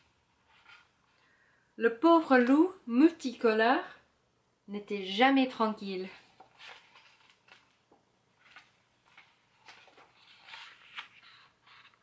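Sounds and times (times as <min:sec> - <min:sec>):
paper pages rustling: 0:00.0 - 0:01.2, 0:06.1 - 0:12.0.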